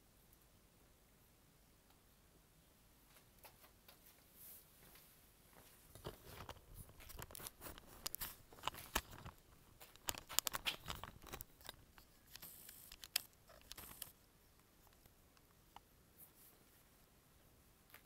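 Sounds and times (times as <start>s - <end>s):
handling clicks rustles and scrapes: 6.0s - 14.2s.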